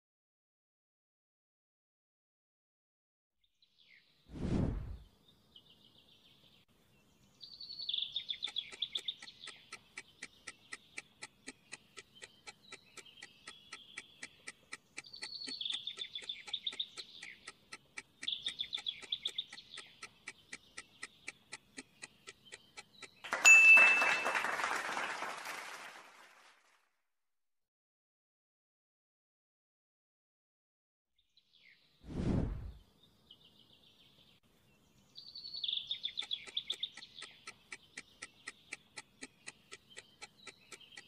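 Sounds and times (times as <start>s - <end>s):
birds chirping: 5.0s - 25.3s, 32.5s - 41.0s
countdown timer ticking: 8.2s - 24.0s, 36.0s - 41.0s.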